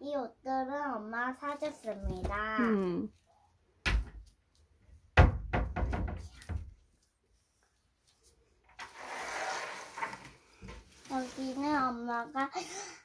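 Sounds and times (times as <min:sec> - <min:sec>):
wardrobe door knock: 0:05.1 - 0:06.3.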